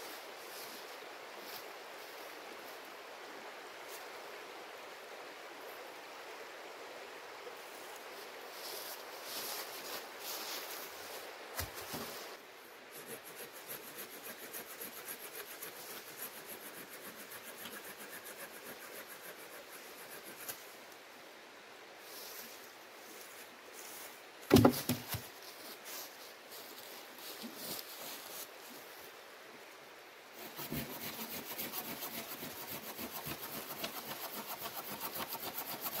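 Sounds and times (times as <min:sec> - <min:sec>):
shallow stream running: 0:00.0 - 0:36.0
hand saw cutting branch: 0:13.0 - 0:20.4, 0:30.4 - 0:36.0.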